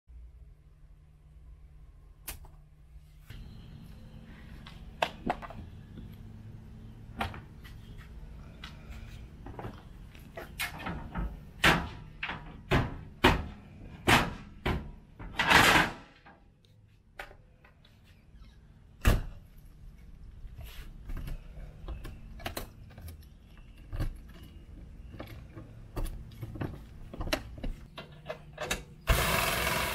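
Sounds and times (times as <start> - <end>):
low steady hum: 0.1 - 15.4.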